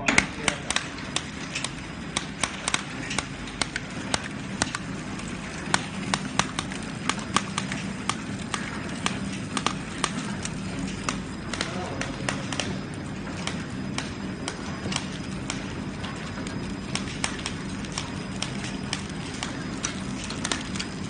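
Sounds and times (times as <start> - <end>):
sharp mechanical clacks: 0.0 - 21.0
steady motor hum: 0.0 - 21.0.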